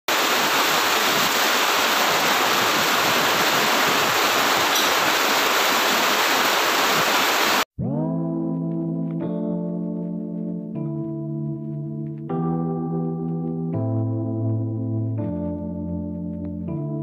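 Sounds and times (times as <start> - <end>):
loud steady hiss: 0.1 - 7.6.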